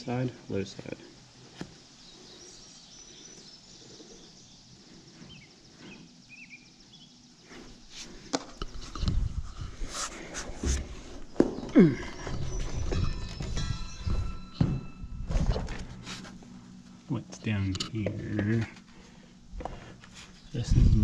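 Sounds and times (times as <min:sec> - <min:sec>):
faint bird chirps: 0:01.8 - 0:07.9
knocks and thumps of climbing: 0:08.2 - 0:16.5.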